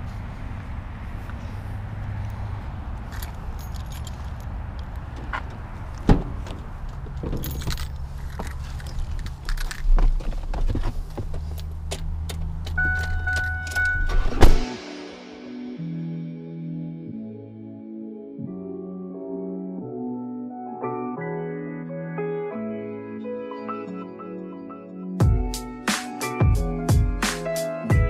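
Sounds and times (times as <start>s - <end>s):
keys jangling: 3.1s - 4.6s, 7.2s - 10.0s
car door slamming: 5.2s - 7.6s, 13.9s - 14.7s
truck door clicks and knocks: 5.2s - 7.9s.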